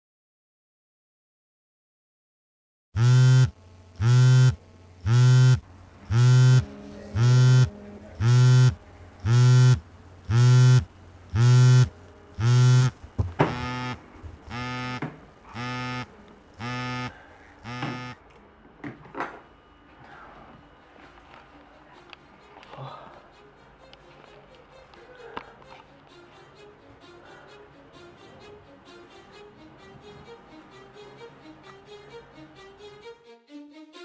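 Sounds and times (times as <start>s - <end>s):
phone vibrating on table: 3.0s - 18.2s.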